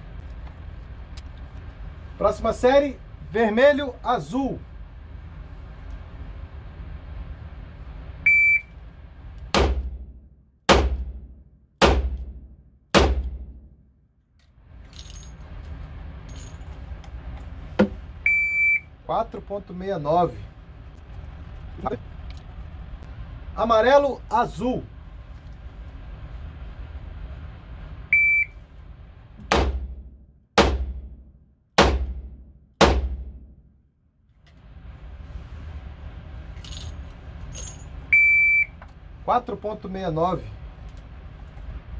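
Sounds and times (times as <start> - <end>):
revolver shots ringing indoors: 9.4 - 13.9, 29.5 - 33.8.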